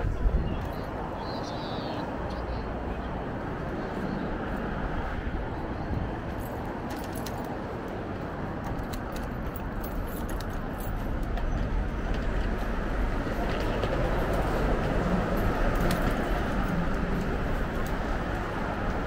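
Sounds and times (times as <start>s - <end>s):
wind rush: 0.0s - 2.3s, 3.2s - 6.9s
road noise: 0.0s - 19.0s
light rattling clicks: 8.5s - 19.0s.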